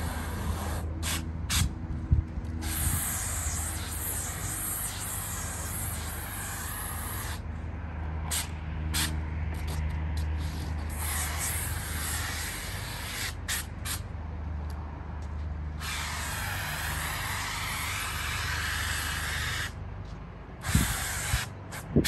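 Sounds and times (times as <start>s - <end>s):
spray guns hissing: 2.6s - 7.4s, 10.4s - 14.0s, 15.8s - 19.7s, 20.6s - 21.8s.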